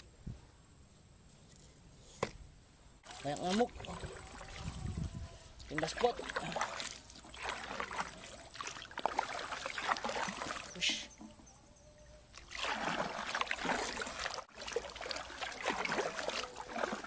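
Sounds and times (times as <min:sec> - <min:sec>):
paddle strokes splashing water: 0:03.0 - 0:04.8, 0:05.6 - 0:11.0, 0:12.3 - 0:17.0
water trickling off paddle: 0:05.6 - 0:11.3, 0:12.3 - 0:17.0.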